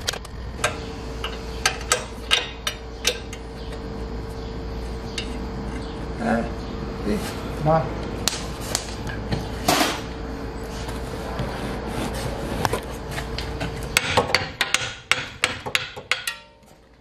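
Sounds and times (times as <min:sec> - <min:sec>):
hammer striking metal: 0:14.0 - 0:16.6.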